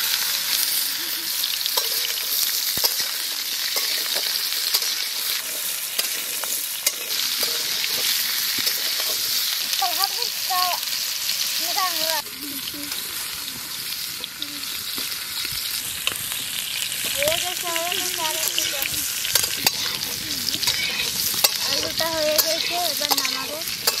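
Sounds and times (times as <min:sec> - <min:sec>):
potatoes sizzling in oil: 0:00.0 - 0:24.0
metal spatula scraping pan: 0:01.8 - 0:09.4, 0:18.1 - 0:24.0.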